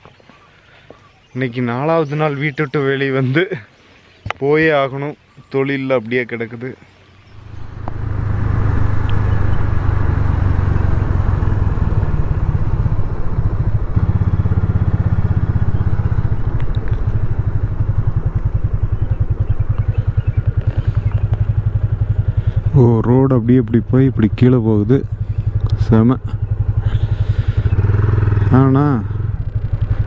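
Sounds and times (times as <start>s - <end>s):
motorcycle engine pulling away: 7.3s - 30.0s.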